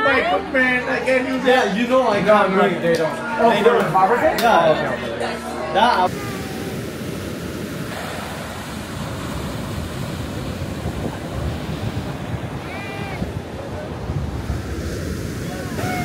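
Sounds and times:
ocean surf rushing: 0:06.0 - 0:16.0
wind buffeting microphone: 0:06.1 - 0:16.0.

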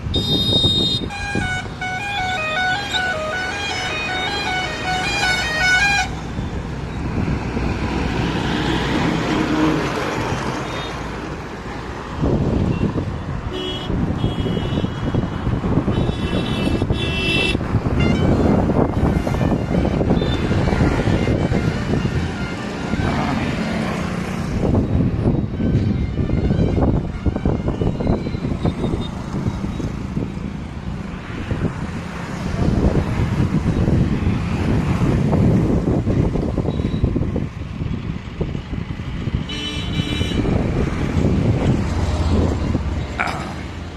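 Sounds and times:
road traffic passing: 0:00.0 - 0:43.9
vehicle horns honking: 0:00.1 - 0:06.5, 0:12.7 - 0:15.3, 0:15.9 - 0:23.5, 0:39.4 - 0:40.6
wind buffeting microphone: 0:06.1 - 0:10.5, 0:11.1 - 0:43.9.

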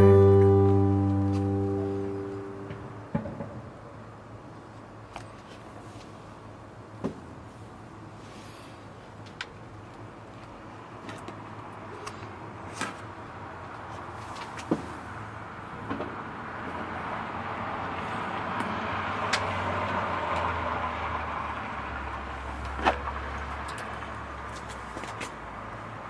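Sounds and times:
vehicle passing: 0:00.0 - 0:03.1, 0:16.4 - 0:25.0.

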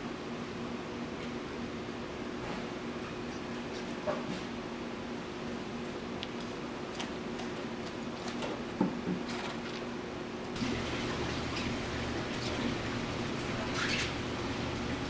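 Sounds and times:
kitchen equipment hum: 0:10.6 - 0:15.0.

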